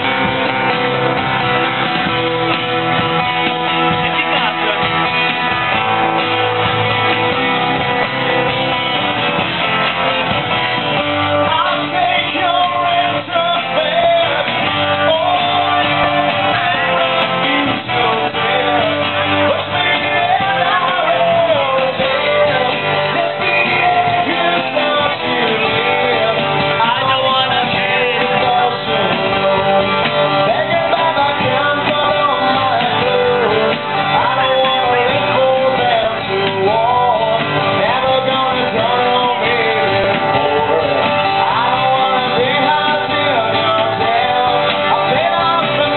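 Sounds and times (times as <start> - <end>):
electric guitar: 0.0 - 45.9
strummed acoustic guitar: 0.0 - 45.9
person singing: 10.9 - 45.9.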